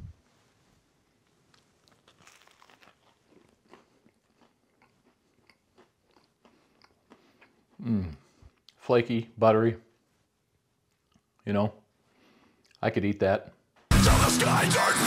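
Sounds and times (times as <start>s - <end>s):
biscuit crunching and chewing: 1.5s - 8.8s.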